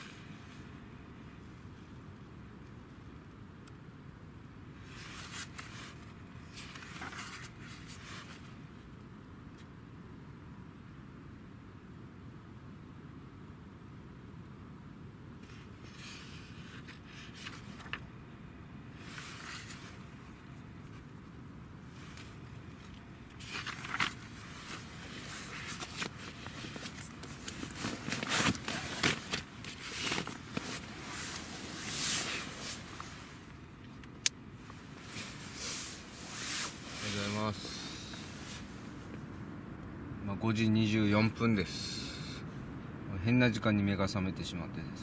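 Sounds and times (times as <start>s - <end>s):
catalogue pages rustling: 4.8s - 8.6s, 15.5s - 18.1s, 19.0s - 20.2s, 21.9s - 33.6s, 34.7s - 39.2s.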